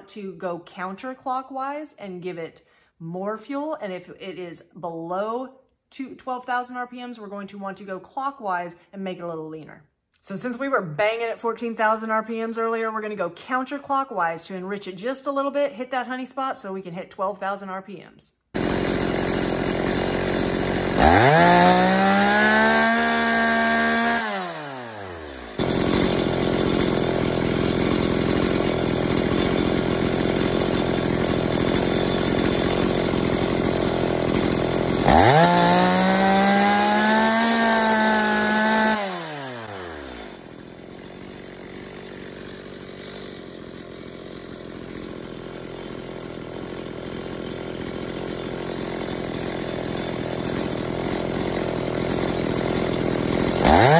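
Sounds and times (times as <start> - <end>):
chainsaw engine revving: 18.6 - 53.9.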